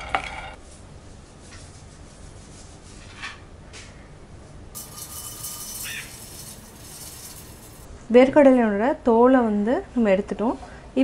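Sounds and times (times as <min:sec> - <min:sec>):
peanuts poured into steel jar: 0:04.8 - 0:07.9
peanuts rubbed by hand: 0:04.8 - 0:07.9.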